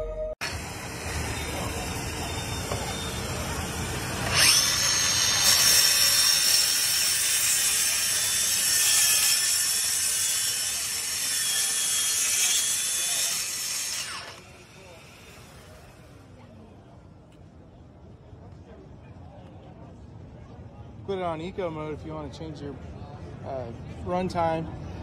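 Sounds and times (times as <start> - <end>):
circular saw whining: 0.4 - 16.4
machine running noise: 0.4 - 16.4.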